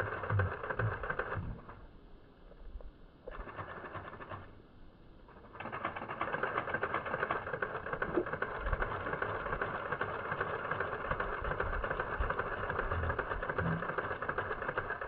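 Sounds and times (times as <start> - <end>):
grainy rattling background noise: 5.3 - 15.0.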